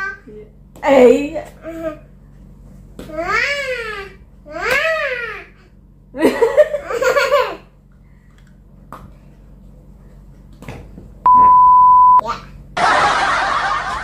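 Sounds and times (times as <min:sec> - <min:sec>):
laughter: 0:06.2 - 0:07.6, 0:12.8 - 0:14.0
single-pitch beep: 0:11.3 - 0:12.2.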